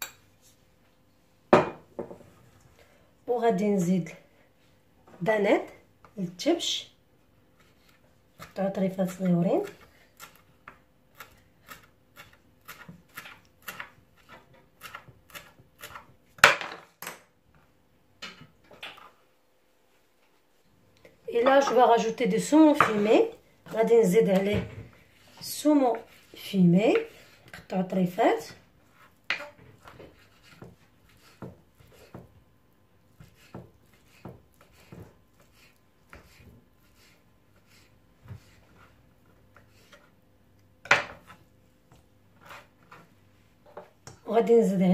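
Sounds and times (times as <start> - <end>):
knife blade scraping board: 29.0 - 32.2, 42.4 - 43.0
knife chopping on wooden board: 29.3 - 32.3, 33.2 - 36.5.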